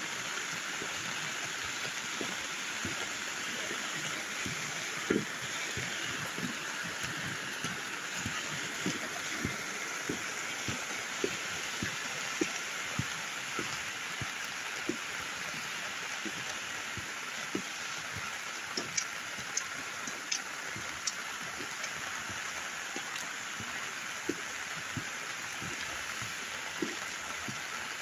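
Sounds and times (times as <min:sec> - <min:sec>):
floodwater rushing: 0:00.0 - 0:28.0
steady rain: 0:00.0 - 0:28.0
drops tapping close by: 0:16.2 - 0:23.7.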